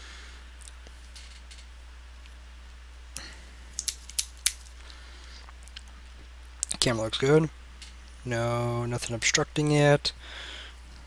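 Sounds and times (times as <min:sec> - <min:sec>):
sharp handling clicks: 0:03.8 - 0:04.7.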